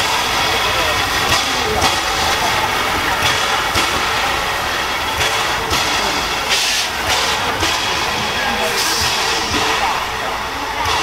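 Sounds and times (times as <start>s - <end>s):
steam locomotive exhaust chuffs: 0.0s - 11.0s.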